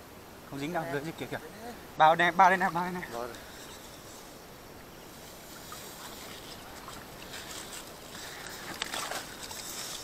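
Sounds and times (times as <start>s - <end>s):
shallow water sloshing: 5.0s - 10.0s
sharp water splashes: 5.4s - 10.0s.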